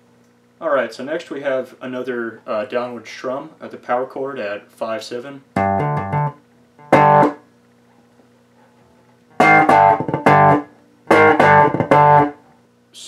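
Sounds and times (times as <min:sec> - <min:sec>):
electric bass strumming power chords: 0:05.6 - 0:07.4, 0:09.4 - 0:12.4.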